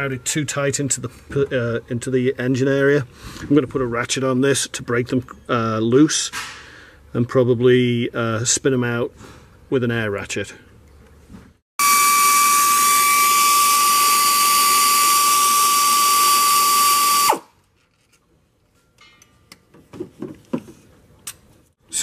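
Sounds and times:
air ratchet whining hiss: 0:11.8 - 0:17.5.

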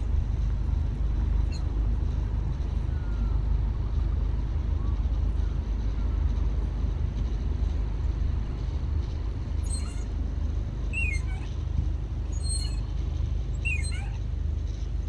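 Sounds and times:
wind buffeting microphone: 0:00.0 - 0:15.0
faint bird chirps: 0:11.0 - 0:11.5.

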